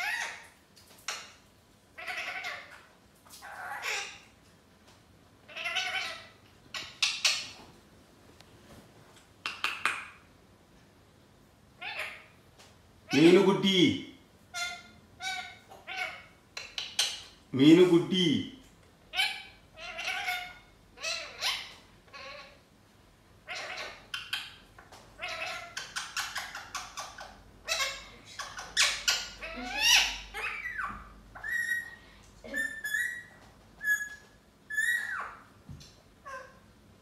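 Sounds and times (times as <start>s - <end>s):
parakeet chattering: 5.5s - 7.6s, 14.5s - 17.4s, 19.1s - 22.6s, 23.5s - 24.6s, 25.2s - 35.5s.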